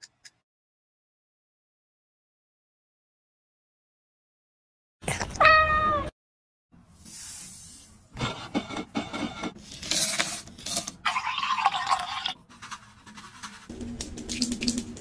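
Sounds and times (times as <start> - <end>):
cat meowing: 5.4 - 6.1
glass scraping in coarse sugar: 9.2 - 13.7.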